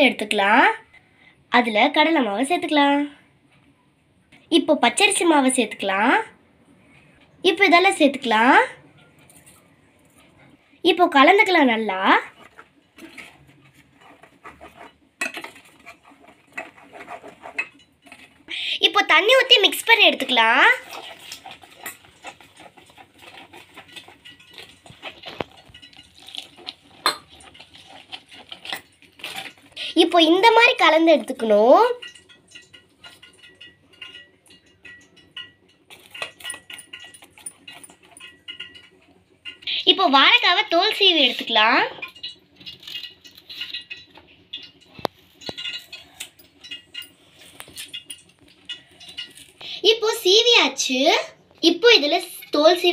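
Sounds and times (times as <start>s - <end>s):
spoon stirring wet batter: 11.2s - 50.9s
spoon scraping steel bowl: 11.4s - 30.9s
knife scratching banana skin: 13.3s - 17.7s.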